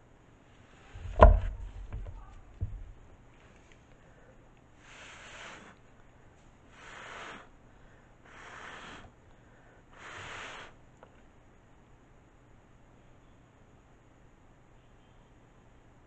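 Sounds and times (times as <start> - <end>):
short puffs of blown air: 4.8 - 5.8, 6.7 - 7.6, 8.2 - 9.2, 9.9 - 10.8.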